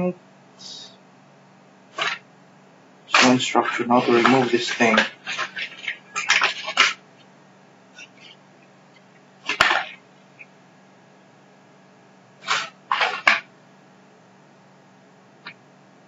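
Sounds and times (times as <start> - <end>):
cardboard packaging rustling: 3.2 - 7.0.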